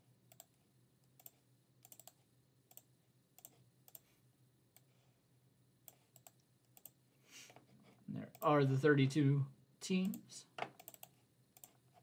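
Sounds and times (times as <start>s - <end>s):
mouse and keyboard clicks: 10.6s - 11.8s.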